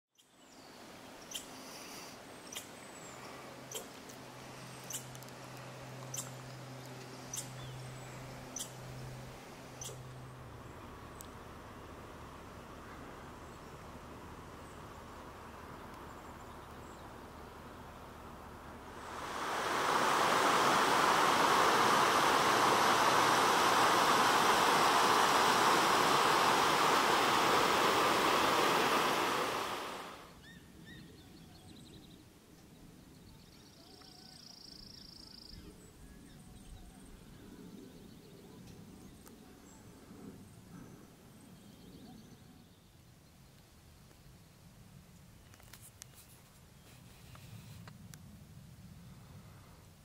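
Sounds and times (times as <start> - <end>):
creek rushing over rocks: 18.9 - 30.3.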